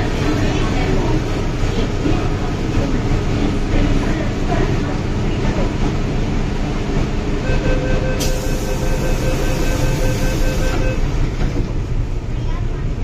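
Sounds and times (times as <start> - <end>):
train humming: 0.0 - 13.0
rapid door warning beeps: 7.5 - 11.1.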